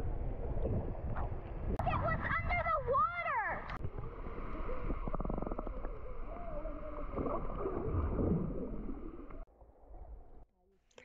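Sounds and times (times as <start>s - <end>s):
muffled underwater water gurgling: 3.8s - 9.4s.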